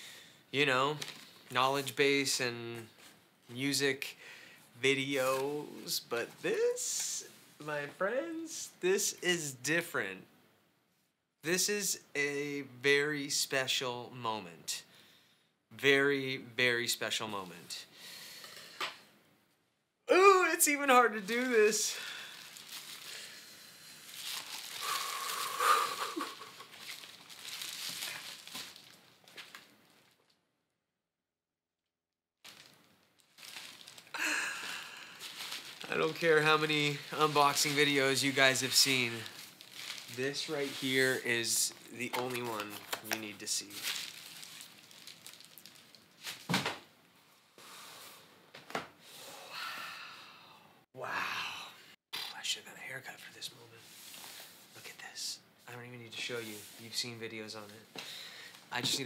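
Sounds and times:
plastic packing crinkling: 21.2 - 30.4, 32.4 - 46.7.

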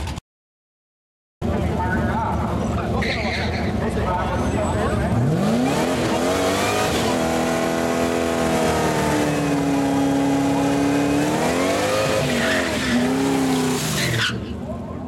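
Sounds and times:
engine revving high: 5.0 - 14.0
tyres screeching: 8.5 - 14.6.

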